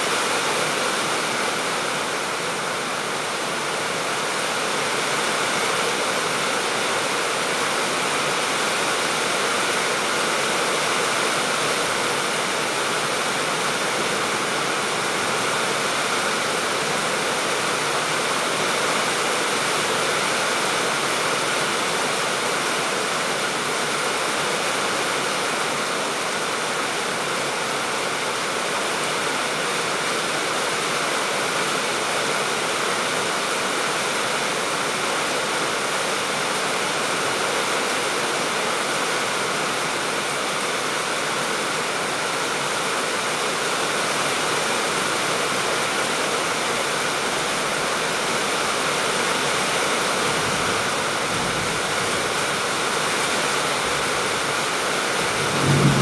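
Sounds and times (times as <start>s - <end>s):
steady rain on roofs: 0.0s - 56.0s.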